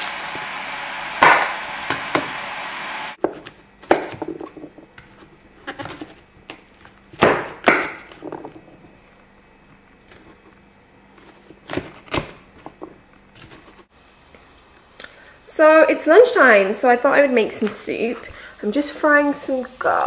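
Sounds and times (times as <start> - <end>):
steady hiss: 13.9 - 20.0.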